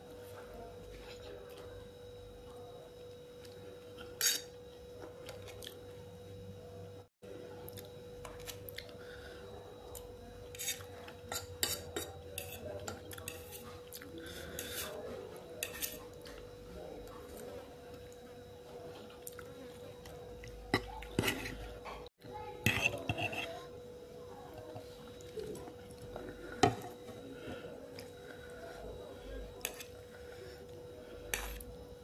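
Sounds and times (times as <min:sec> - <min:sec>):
fork clinking against a plate: 0:10.6 - 0:13.6.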